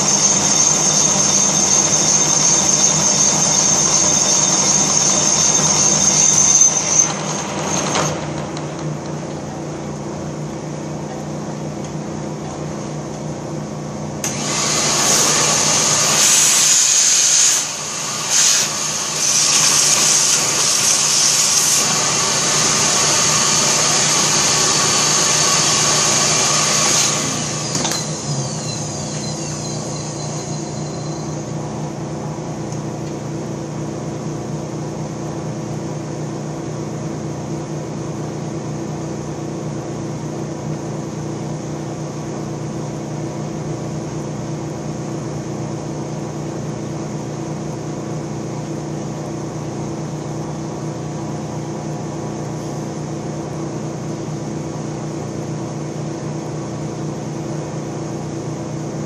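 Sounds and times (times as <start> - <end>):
boring machine motor hum: 0.0 - 34.4
loud hissing of tool cutting: 14.2 - 31.4.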